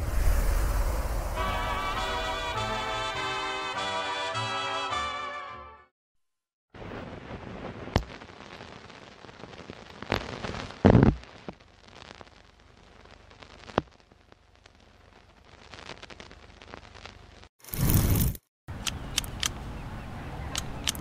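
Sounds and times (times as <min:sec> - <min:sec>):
television static hiss: 0:07.1 - 0:17.5
crackles and sharp clicks: 0:07.1 - 0:19.6, 0:20.5 - 0:21.0.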